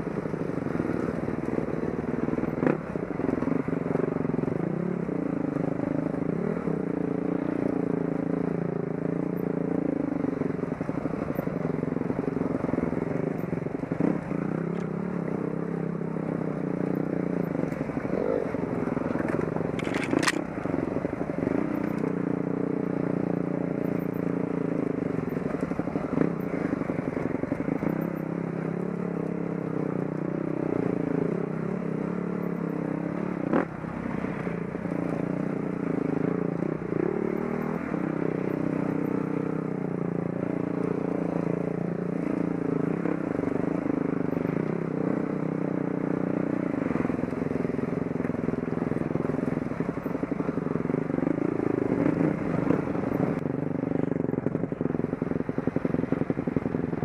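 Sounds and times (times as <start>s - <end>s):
dirt bike engine revving: 17.8s - 20.4s.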